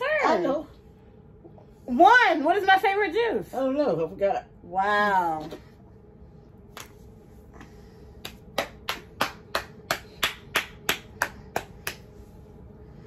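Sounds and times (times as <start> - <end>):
hands clapping: 8.2 - 12.1.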